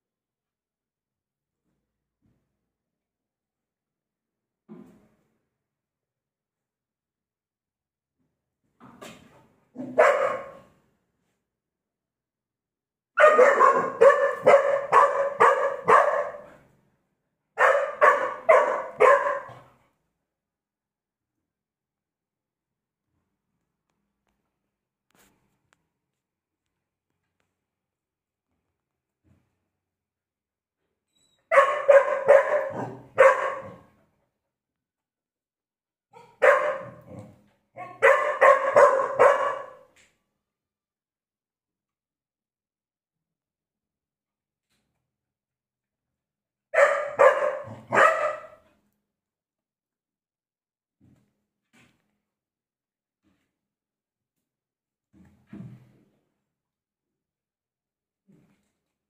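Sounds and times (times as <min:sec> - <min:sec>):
dog barking: 0:09.8 - 0:10.7, 0:13.2 - 0:16.6, 0:17.6 - 0:19.8, 0:31.5 - 0:33.9, 0:36.2 - 0:39.9, 0:46.8 - 0:48.7.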